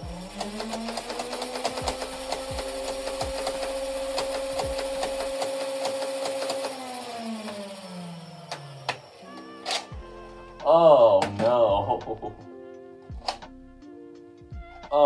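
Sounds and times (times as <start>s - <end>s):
rapid mechanism clicking: 0.0s - 7.9s
flywheel motors spinning: 0.0s - 9.8s.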